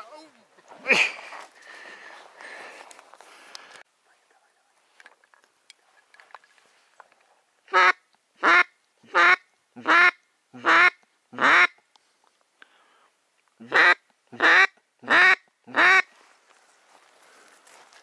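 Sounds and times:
duck quacking: 7.7 - 11.7, 13.6 - 16.1.

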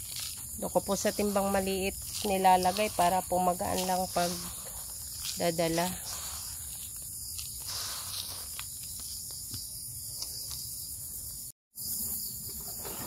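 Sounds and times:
granules rustling in bucket: 0.0 - 9.4
crickets chirring: 0.0 - 13.0.

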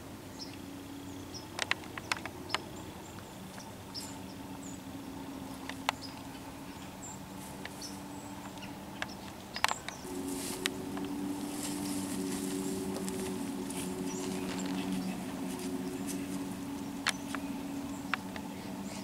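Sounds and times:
deer stepping through dry leaves: 10.0 - 17.6.

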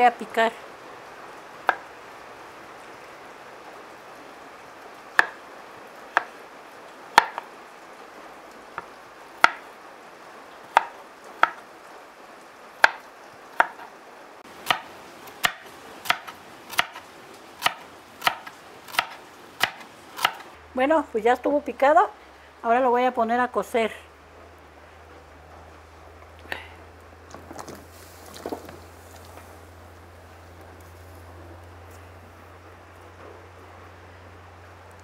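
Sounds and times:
knife chopping on wooden board: 5.2 - 5.4, 7.2 - 7.4, 10.8 - 11.6, 13.6 - 13.9, 14.6 - 17.0, 17.6 - 20.5.

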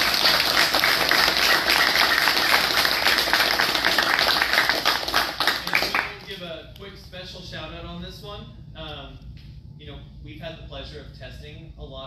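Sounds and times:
people clapping: 0.0 - 6.4.

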